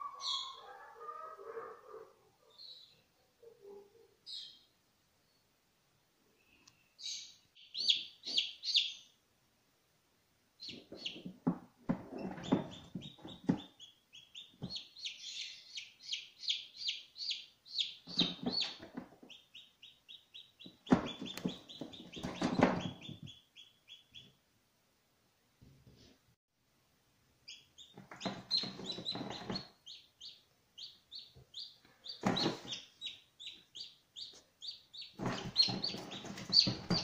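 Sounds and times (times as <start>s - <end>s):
chicks peeping: 0.0s - 0.9s, 7.0s - 9.1s, 10.6s - 24.4s, 27.4s - 37.0s
low rustling and bumping: 35.2s - 37.0s.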